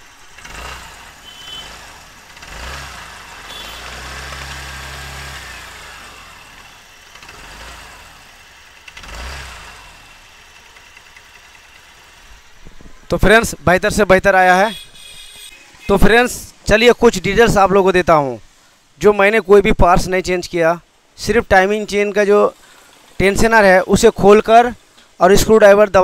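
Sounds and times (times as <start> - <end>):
scooter engine running: 0.0 - 12.8.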